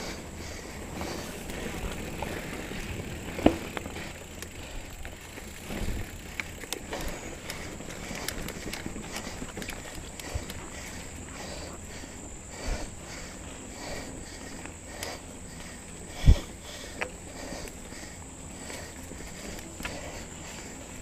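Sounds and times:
bike thumping over bumps: 0.0 - 11.1
bike rattles and clicks: 0.0 - 21.0
bike tyres on dirt trail: 0.0 - 21.0.

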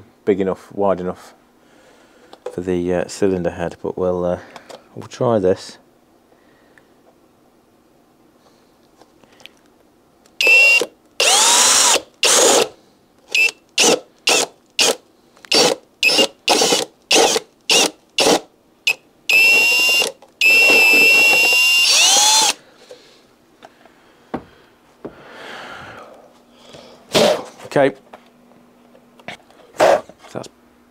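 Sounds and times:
cordless drill cutting plastic: 10.4 - 22.6.

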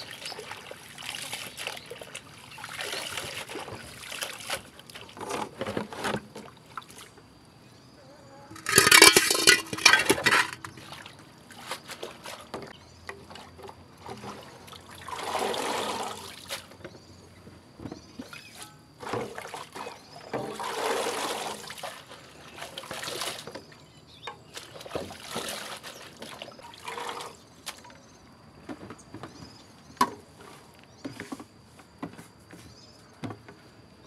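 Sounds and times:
hands sloshing water in basins: 0.0 - 7.3, 8.5 - 17.3, 18.1 - 31.6
knocks against metal basin: 8.5 - 10.8
water poured into basin: 14.2 - 16.5.

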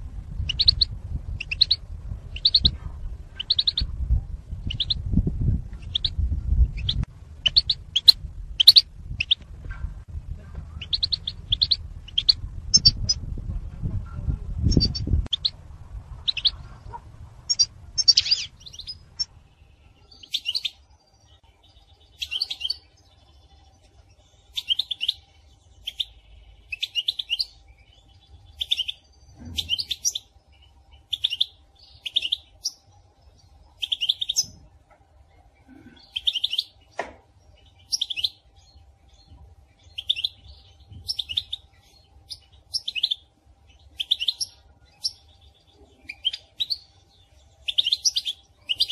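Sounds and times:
goldfinch chattering calls: 0.5 - 1.8, 2.4 - 2.7, 6.8 - 9.4, 10.8 - 13.1.

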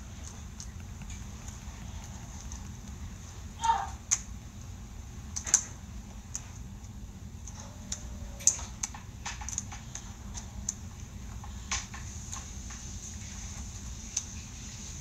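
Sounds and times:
plastic toy clicking and snapping: 5.3 - 6.5, 7.4 - 11.0.

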